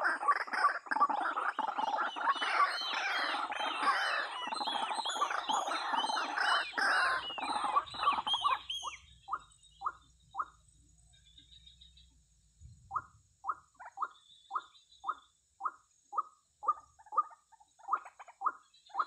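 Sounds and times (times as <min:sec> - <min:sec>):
waterhens calling: 0:00.0 - 0:10.6.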